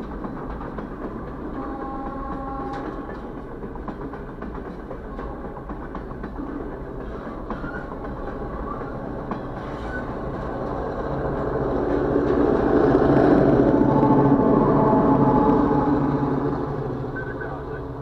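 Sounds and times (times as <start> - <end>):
train wheels clicking over rail joints: 0.0 - 17.3
diesel locomotive engine: 0.0 - 18.0
train wheel squeals: 1.5 - 3.4, 5.1 - 11.2.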